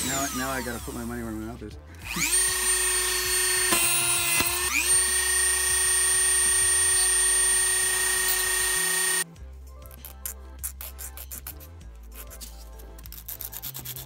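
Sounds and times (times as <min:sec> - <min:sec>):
rotary tool cutting metal: 0:00.0 - 0:01.2, 0:02.0 - 0:09.2.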